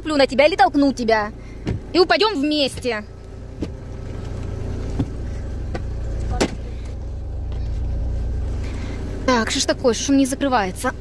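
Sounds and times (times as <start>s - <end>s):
steady low rumble: 0.0s - 11.0s
car seat knocks and clunks: 1.6s - 2.0s, 2.6s - 3.9s, 4.8s - 6.7s.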